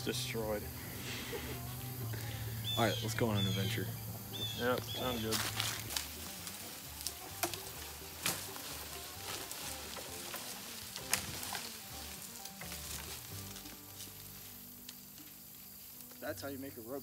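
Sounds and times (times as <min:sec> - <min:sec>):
leaves and twigs crackling: 0:00.0 - 0:17.0
sharp cracks of vine: 0:05.0 - 0:16.3.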